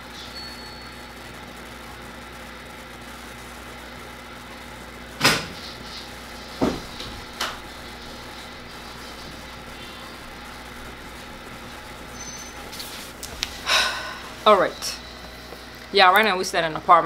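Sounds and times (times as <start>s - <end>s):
low household hum: 0.0s - 17.0s
sudden knocks: 6.6s - 7.6s.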